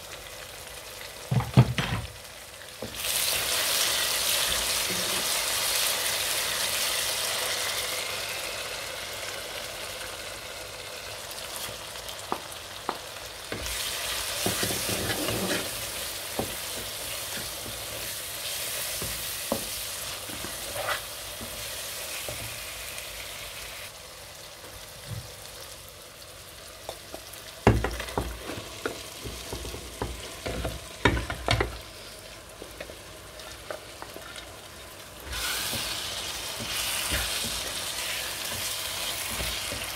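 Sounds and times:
masala sizzling in a pot: 0:00.0 - 0:39.9
wooden spatula scraping pot: 0:14.4 - 0:18.2, 0:18.9 - 0:21.5.

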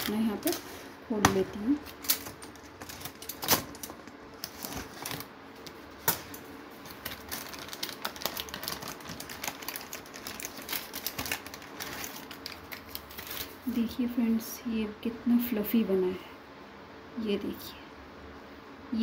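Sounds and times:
baking paper crinkling: 0:00.0 - 0:13.9.

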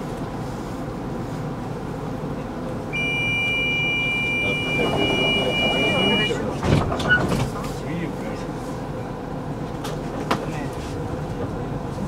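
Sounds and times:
tram interior rumble: 0:00.0 - 0:12.0
two-tone electronic beep: 0:03.0 - 0:06.4.

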